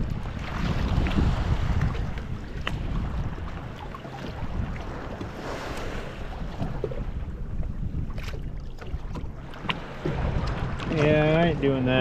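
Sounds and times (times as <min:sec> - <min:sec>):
water sloshing against kayak hull: 0:00.0 - 0:12.0
wind rumble on microphone: 0:00.0 - 0:12.0.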